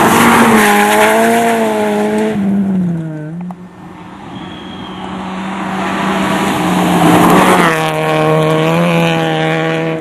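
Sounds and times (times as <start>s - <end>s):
rally car engine at high revs: 0.0s - 3.5s, 5.6s - 10.0s.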